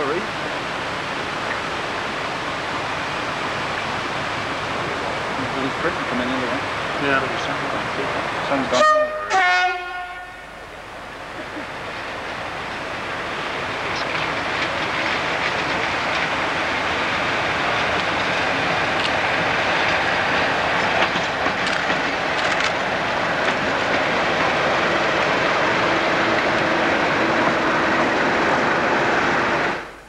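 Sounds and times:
diesel locomotive engine running: 0.0 - 30.0.

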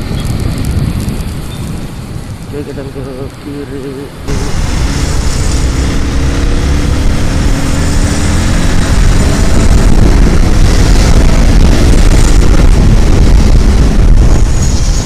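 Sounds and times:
wind rush on microphone: 0.0 - 15.0
motorcycle engine running: 4.3 - 15.0.

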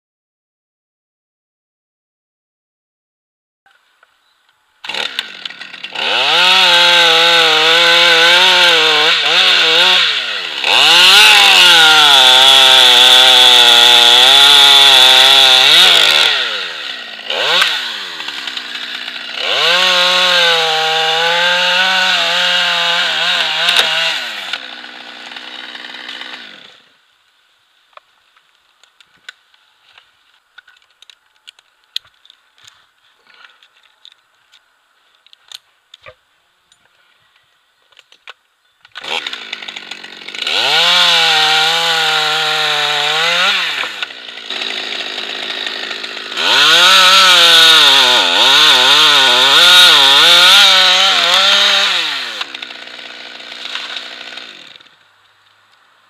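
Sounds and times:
chainsaw cutting wood: 4.8 - 27.0, 38.9 - 55.1.

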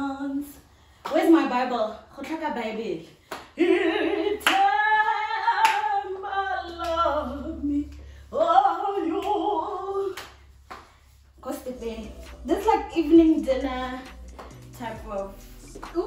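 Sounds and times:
sharp claps: 3.3 - 3.6, 5.6 - 5.9, 10.1 - 11.0, 14.0 - 14.8.

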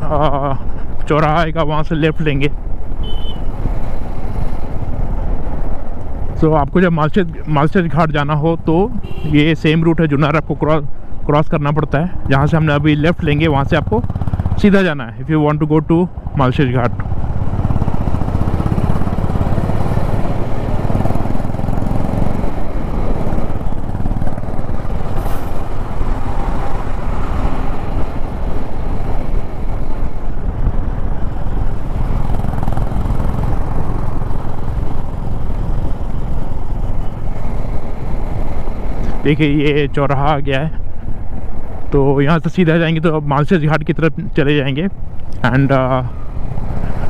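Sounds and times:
motorcycle engine: 8.7 - 9.4, 12.1 - 39.5, 44.9 - 47.0.

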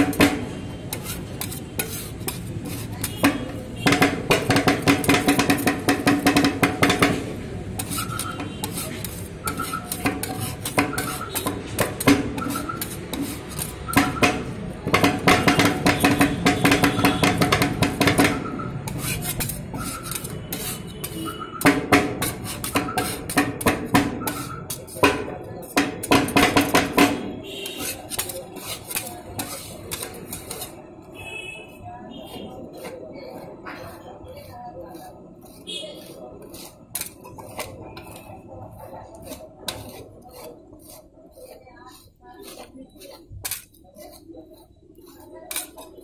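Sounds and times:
spatulas scraping metal plate: 0.0 - 46.0
metal spatulas clicking on plate: 7.8 - 30.8, 41.4 - 44.2, 45.1 - 46.0.

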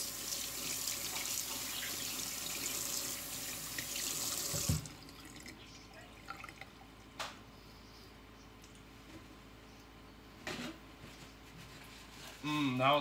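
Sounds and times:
tap shutting off thump: 4.5 - 4.9.

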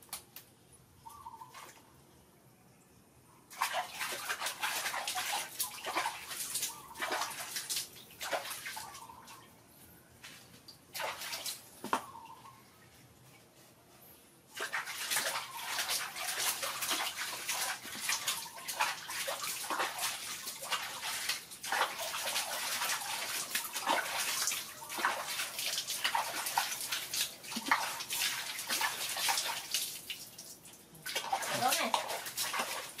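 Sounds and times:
water dripping: 3.5 - 9.4, 14.5 - 33.0
water splashing in a bucket: 3.5 - 9.4, 10.2 - 12.1, 14.5 - 33.0.

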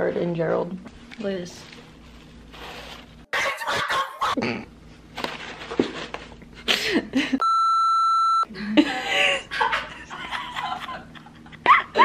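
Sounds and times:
high-pitched censor beep: 7.4 - 8.5.

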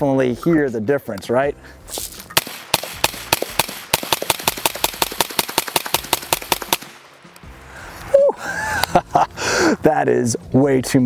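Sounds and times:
suppressed gunshots: 2.3 - 7.4.

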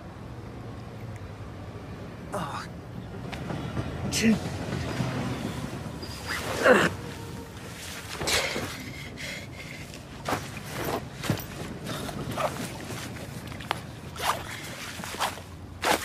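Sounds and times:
fabric backpack rustling: 10.0 - 16.0
zip pulls: 14.2 - 16.0.

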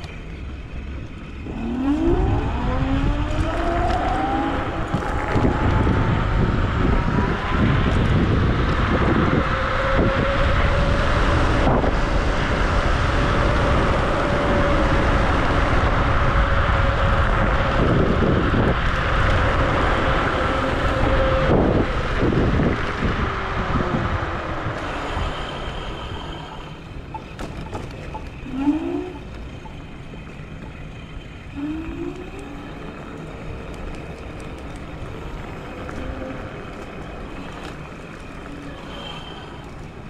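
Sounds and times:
wind rush: 1.5 - 26.5.

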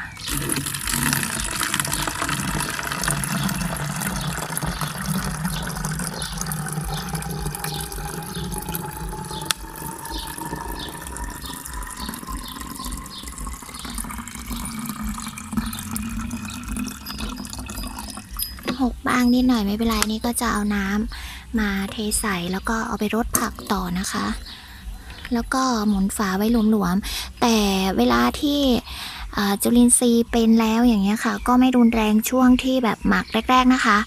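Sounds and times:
liquid pouring into plastic bottle: 0.1 - 18.8.

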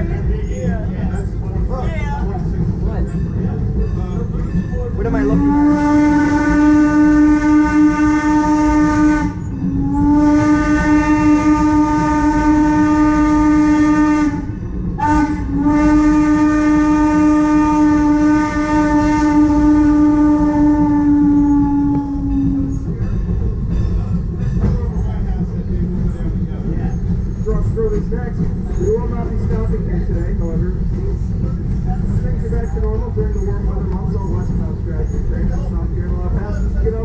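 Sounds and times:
moving train rumble: 0.0 - 37.0
steam locomotive whistle blasts: 5.1 - 22.9.

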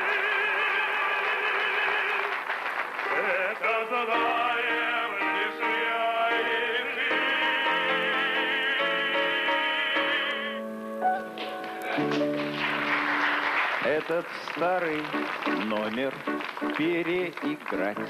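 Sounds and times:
operatic singing: 0.0 - 10.7
piano accompaniment: 3.1 - 18.0.

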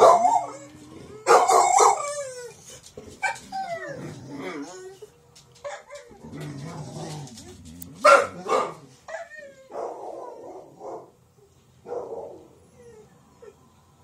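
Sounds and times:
dog barking: 0.0 - 0.5, 1.2 - 2.0, 8.0 - 11.2, 11.8 - 12.5
dog whining and yipping: 0.0 - 6.2, 12.6 - 13.6.

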